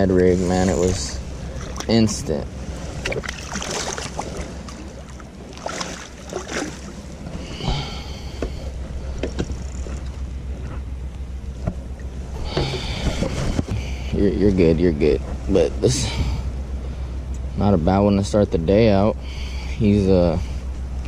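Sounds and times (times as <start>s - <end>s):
water lapping: 0.0s - 10.9s.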